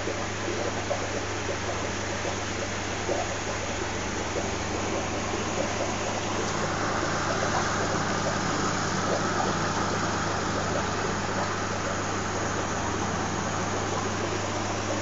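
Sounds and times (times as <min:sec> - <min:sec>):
hiss of moving water and air: 0:00.0 - 0:15.0
low electrical hum: 0:00.0 - 0:15.0.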